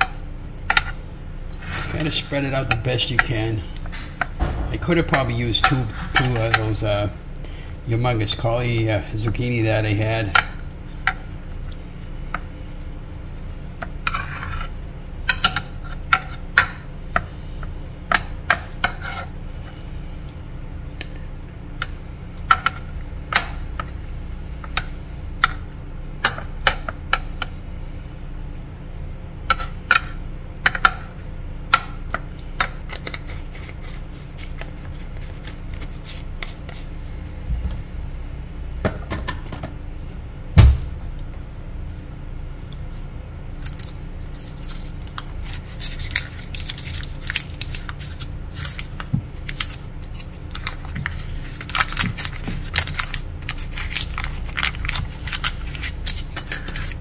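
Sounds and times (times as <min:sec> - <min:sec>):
steady low hum: 0:00.0 - 0:57.0
heavy thump: 0:04.4 - 0:05.2, 0:40.6 - 0:41.0.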